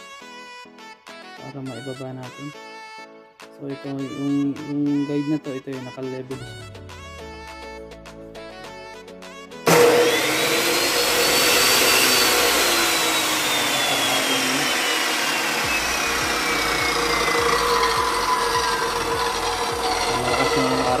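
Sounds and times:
chop saw motor whine: 0:09.7 - 0:21.0.

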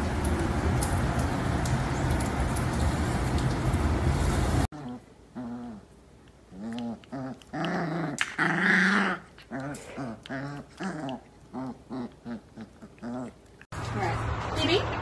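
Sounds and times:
dogs growling and whining: 0:04.8 - 0:13.7.

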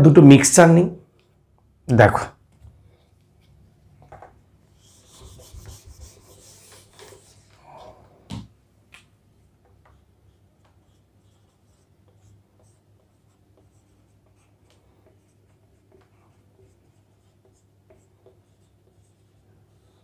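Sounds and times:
marker writing on whiteboard: 0:04.7 - 0:07.6, 0:09.6 - 0:20.0.

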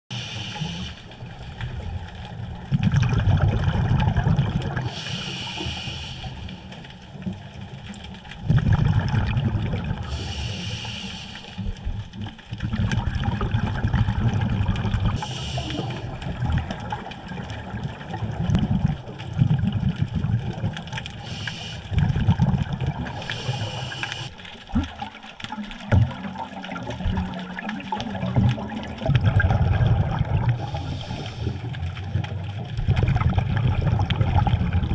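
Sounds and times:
regulator hiss: 0:00.1 - 0:01.2, 0:04.9 - 0:06.8, 0:10.1 - 0:11.7, 0:15.2 - 0:16.2, 0:21.2 - 0:21.9, 0:23.2 - 0:24.4, 0:30.6 - 0:31.7
underwater bubbles gurgling: 0:00.1 - 0:34.9.

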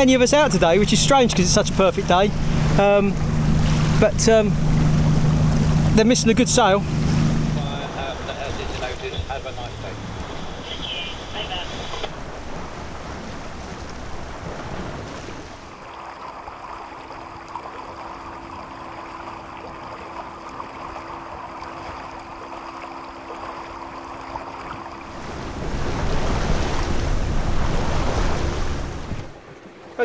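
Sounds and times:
faint steady hum: 0:00.0 - 0:14.4, 0:15.5 - 0:27.7
water rushing along hull: 0:00.0 - 0:30.0
wind on microphone: 0:24.7 - 0:29.4.

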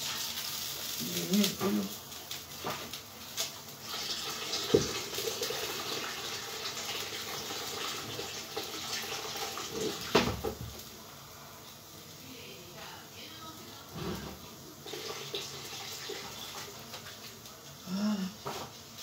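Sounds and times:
water running from a tap: 0:00.0 - 0:10.9, 0:13.9 - 0:17.7.

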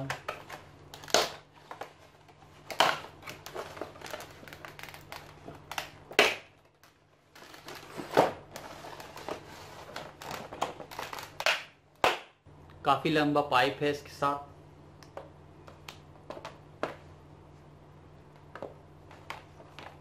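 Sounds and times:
plastic packaging crackling: 0:02.6 - 0:11.5.

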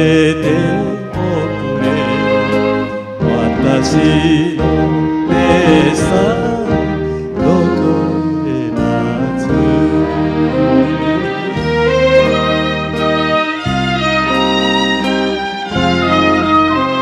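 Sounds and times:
man singing: 0:00.0 - 0:12.5
karaoke backing track with strings: 0:00.0 - 0:17.0.

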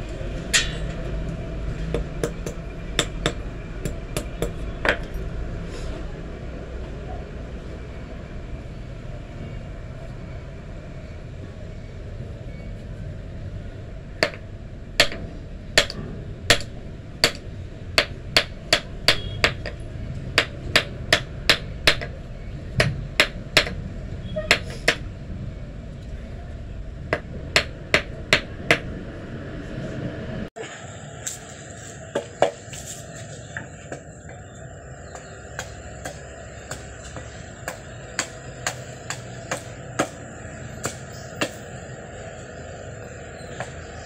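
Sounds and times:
hammer striking metal anvil: 0:00.5 - 0:01.1.

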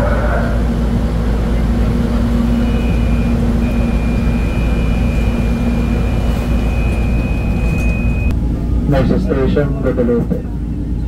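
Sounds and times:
train rumbling: 0:00.0 - 0:11.0.

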